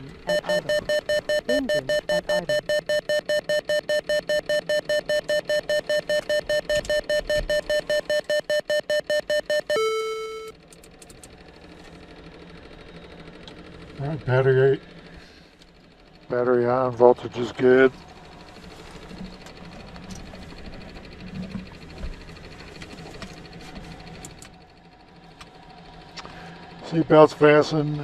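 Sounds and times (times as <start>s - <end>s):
low electrical hum: 0.0s - 28.0s
rapid warning beeps: 0.3s - 10.5s.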